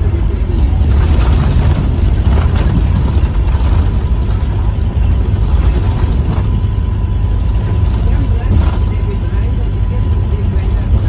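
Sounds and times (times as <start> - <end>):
bus engine running: 0.0 - 11.0.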